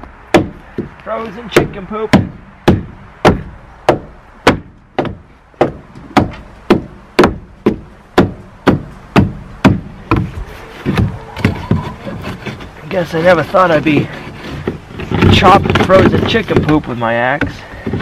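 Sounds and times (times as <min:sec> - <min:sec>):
axe chopping: 0:00.3 - 0:12.6.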